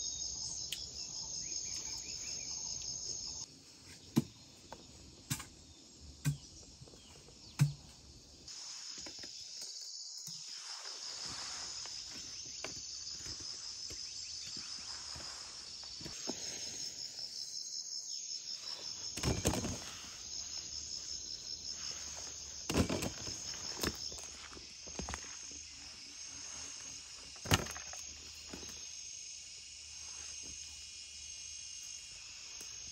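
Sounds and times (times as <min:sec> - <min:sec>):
insects chirring: 0:00.0 - 0:32.9
rustling in grass and leaves: 0:06.8 - 0:32.9.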